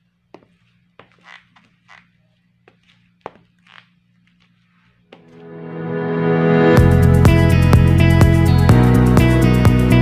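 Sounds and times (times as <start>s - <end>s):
shoes squeaking: 0.0s - 5.4s
heel taps on tile floor: 2.7s - 3.5s.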